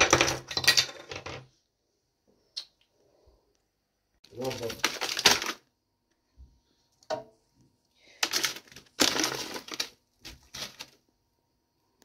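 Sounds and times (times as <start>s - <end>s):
frozen berries clattering in plastic: 4.2s - 5.7s, 8.0s - 11.1s.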